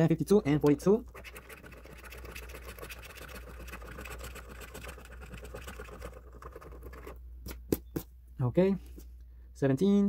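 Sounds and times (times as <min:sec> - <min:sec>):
coin scraping scratch card: 0:00.7 - 0:07.2.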